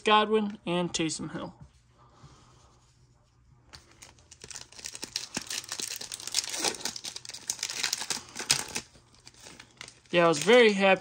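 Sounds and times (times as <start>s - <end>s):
foil wrapper crinkling and tearing: 3.8s - 11.0s.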